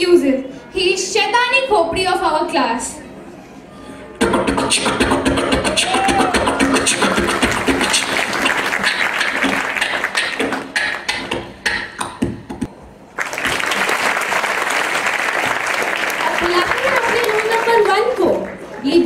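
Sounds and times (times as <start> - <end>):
beatboxing into microphone: 4.2 - 12.7
audience applauding: 5.7 - 11.1, 13.1 - 18.8.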